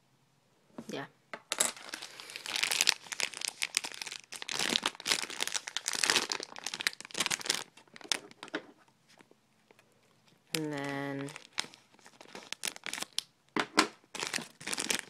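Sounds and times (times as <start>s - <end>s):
plastic packaging crinkling: 1.5s - 13.3s, 13.9s - 15.0s.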